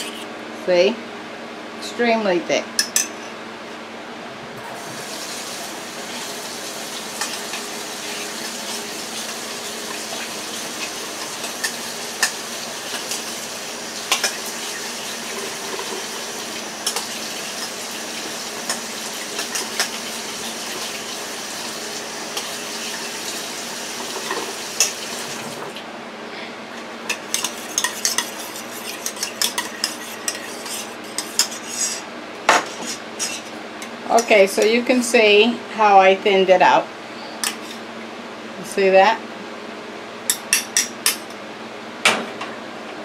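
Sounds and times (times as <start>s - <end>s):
kitchen tap running: 4.6s - 25.8s.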